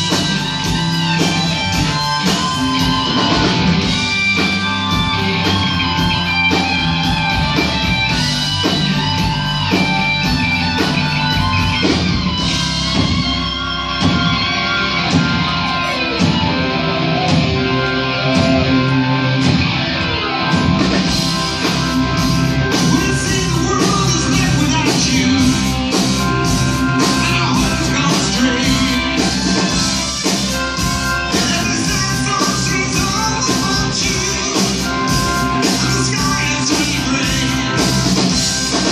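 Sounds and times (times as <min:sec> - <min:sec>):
electric guitars: 0:00.0 - 0:38.9
keyboard: 0:00.0 - 0:38.9
person singing: 0:22.6 - 0:38.9.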